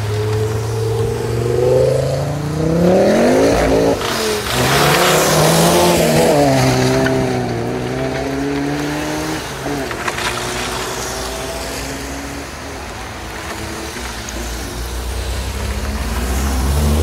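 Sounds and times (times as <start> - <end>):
cars accelerating past: 0.0 - 17.0.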